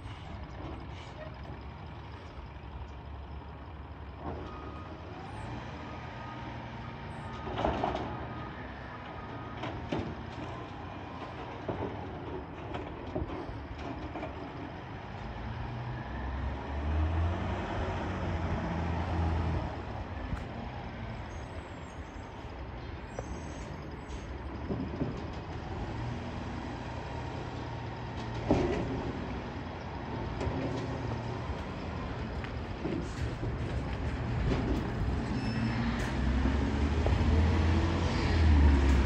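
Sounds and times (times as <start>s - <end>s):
garbage truck engine revving: 14.3s - 21.3s, 24.6s - 39.0s.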